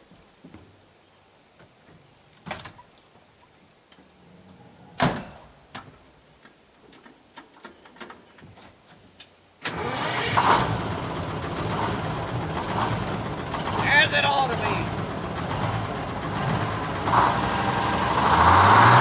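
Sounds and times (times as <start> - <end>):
diesel engine starting and running: 9.6 - 19.0.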